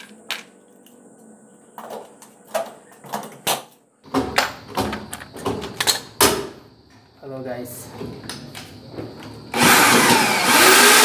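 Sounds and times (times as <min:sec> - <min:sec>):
hand tools knocking and clunking: 0:01.8 - 0:07.1.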